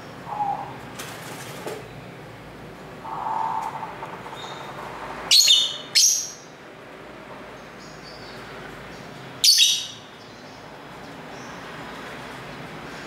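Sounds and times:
bird shrill calls: 0:05.3 - 0:06.4, 0:09.4 - 0:10.0.

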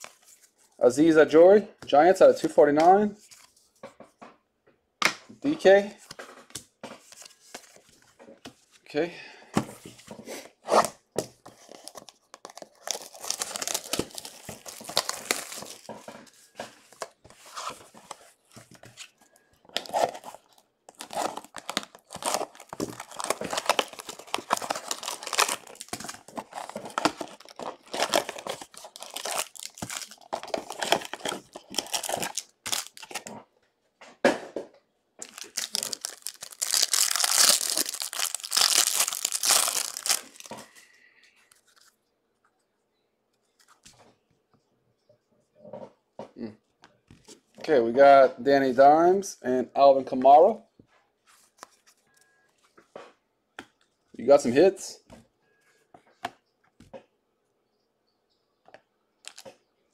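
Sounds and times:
plastic wrap crinkling: 0:11.7 - 0:18.2, 0:19.1 - 0:33.3, 0:35.2 - 0:40.7
plastic shrink wrap tearing: 0:12.5 - 0:15.9, 0:19.8 - 0:33.3, 0:35.2 - 0:40.5.

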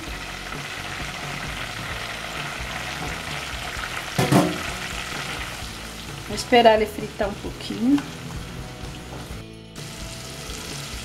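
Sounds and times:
garlic sizzling in oil: 0:00.0 - 0:11.0
sharp knock: 0:04.2 - 0:04.7.

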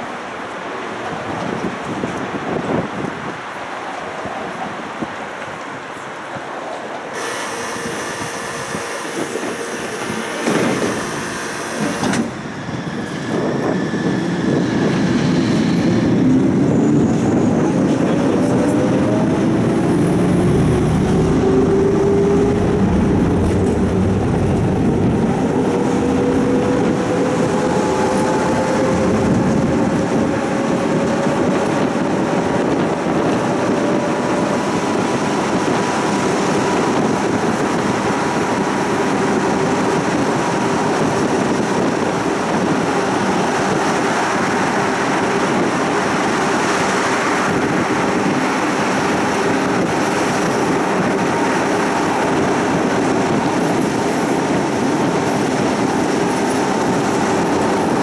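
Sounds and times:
tram wheels rumbling on rails: 0:00.0 - 0:58.0
tram motor whine: 0:07.1 - 0:58.0
knocks inside tram: 0:10.0 - 0:11.0.

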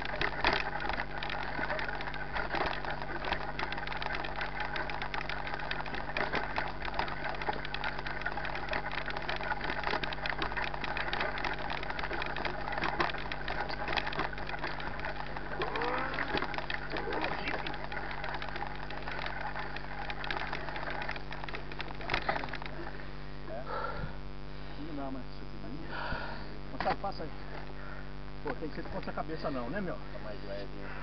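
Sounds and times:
bike rattling on rough trail: 0:00.0 - 0:23.0
steady low hum: 0:00.0 - 0:31.0.

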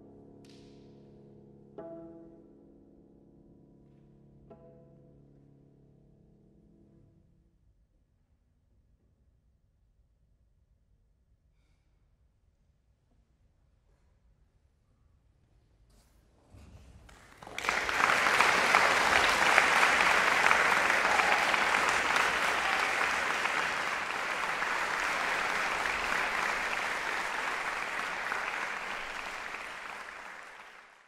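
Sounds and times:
audience applauding: 0:17.1 - 0:31.0.

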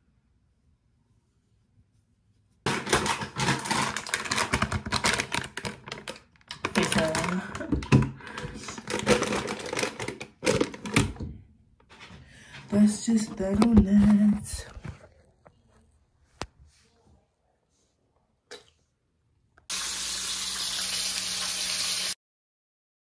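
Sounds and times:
plastic packet crinkling: 0:02.7 - 0:11.1.

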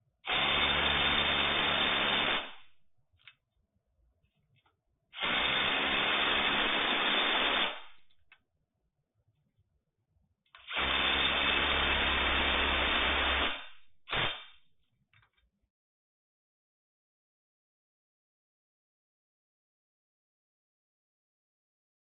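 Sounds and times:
impact driver running nuts: 0:05.2 - 0:07.8, 0:10.6 - 0:13.6.

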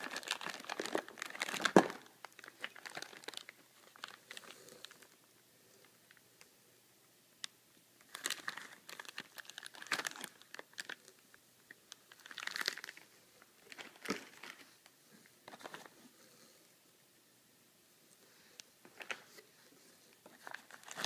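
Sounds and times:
plastic bags crinkling: 0:00.0 - 0:05.2, 0:08.0 - 0:11.2, 0:11.9 - 0:14.8, 0:15.4 - 0:16.0, 0:20.2 - 0:21.0.

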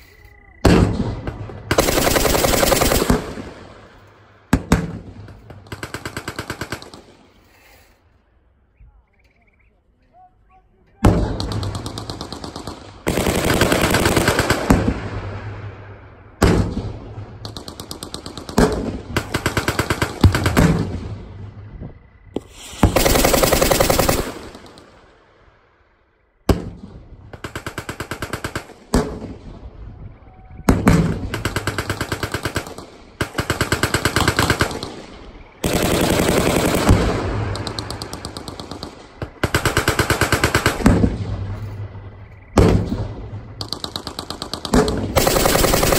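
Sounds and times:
automatic gunfire bursts: 0:01.7 - 0:03.7, 0:11.1 - 0:14.9, 0:22.5 - 0:24.8, 0:30.7 - 0:41.1, 0:43.6 - 0:45.9.

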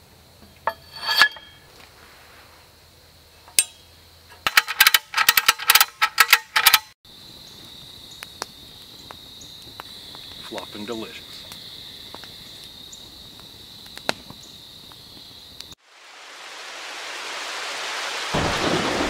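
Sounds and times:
insects chirping: 0:00.0 - 0:17.5
metal tubes clinking: 0:00.6 - 0:01.7, 0:04.4 - 0:06.9.

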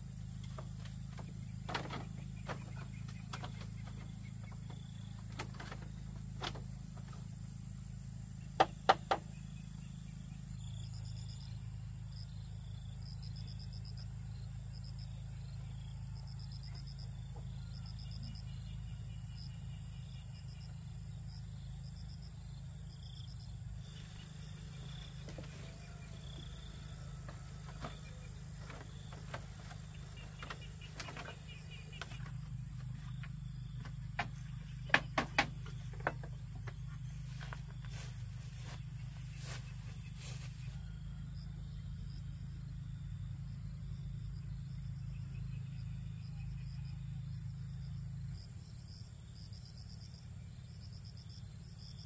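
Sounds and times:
insects chirping: 0:00.0 - 0:52.0
sharp knocks: 0:08.6 - 0:09.3, 0:27.3 - 0:37.0.

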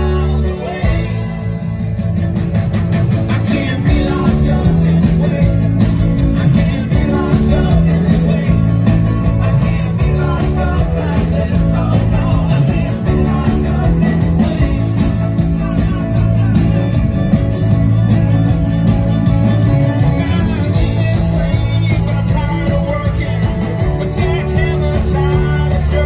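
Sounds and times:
live folk-rock band: 0:00.0 - 0:26.0.

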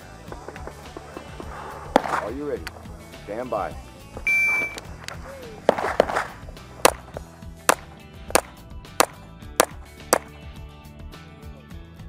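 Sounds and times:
background music: 0:00.0 - 0:12.0
pistol shots: 0:05.7 - 0:10.3.

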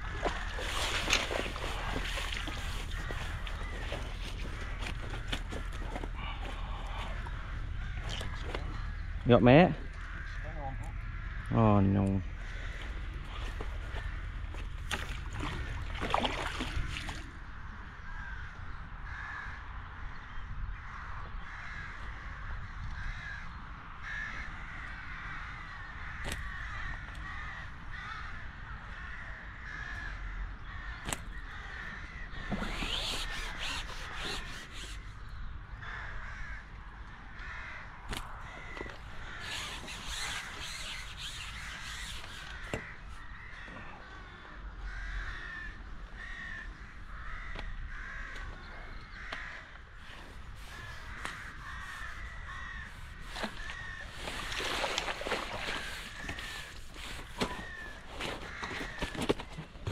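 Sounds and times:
crows cawing: 0:00.0 - 0:15.9, 0:18.0 - 0:20.1, 0:20.8 - 0:35.1, 0:35.8 - 0:59.6
wind rumble on microphone: 0:12.2 - 0:39.8.

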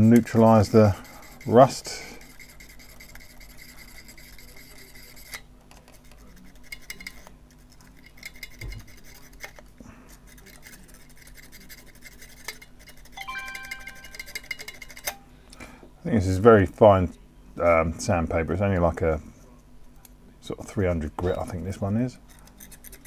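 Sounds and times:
sandpaper scratching on metal: 0:00.0 - 0:05.4, 0:10.3 - 0:13.2
quiet background music: 0:13.2 - 0:22.9.

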